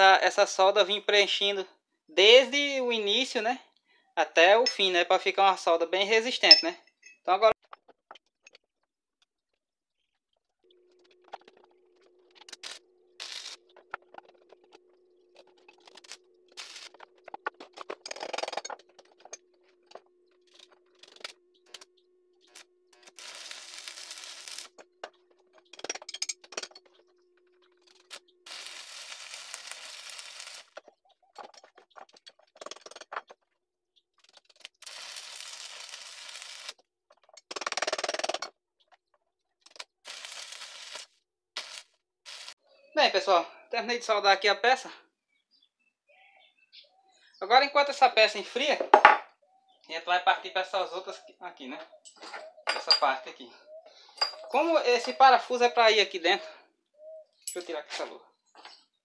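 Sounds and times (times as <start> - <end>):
welding arc crackling: 12.3 - 14.5, 15.5 - 17.6, 22.5 - 24.9, 27.8 - 30.8, 34.5 - 36.8, 39.8 - 42.6
metallic taps and clinks: 54.2 - 54.5.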